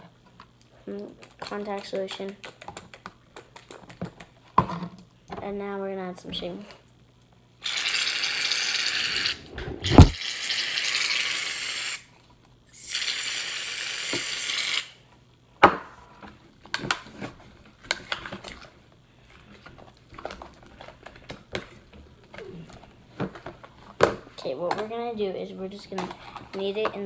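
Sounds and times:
sharp thump: 0:09.9 - 0:10.2
aerosol can hissing: 0:10.0 - 0:12.0, 0:12.8 - 0:15.0.

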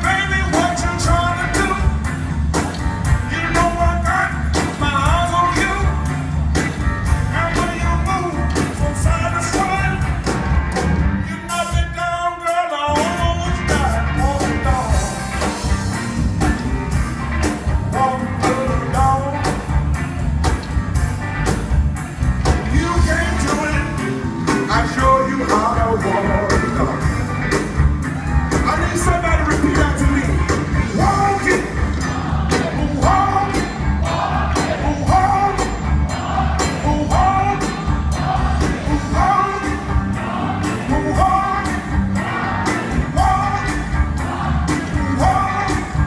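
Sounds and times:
live blues band: 0:00.0 - 0:46.0
drum beat: 0:13.0 - 0:46.0
man singing into microphone: 0:24.7 - 0:27.1.

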